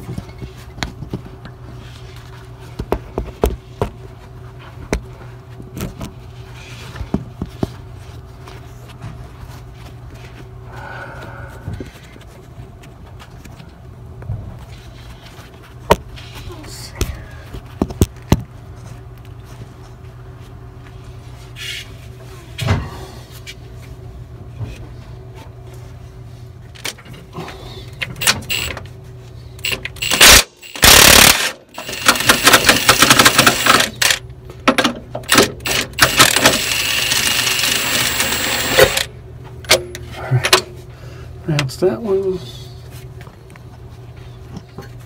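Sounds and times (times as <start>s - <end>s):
steady low hum: 0.0s - 45.0s
impact wrench hammering: 29.6s - 34.1s, 35.2s - 39.1s.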